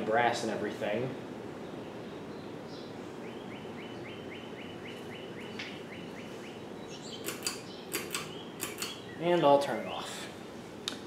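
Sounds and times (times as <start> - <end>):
ceiling fan air rush: 0.0 - 11.0
sharp clicks: 7.2 - 9.0.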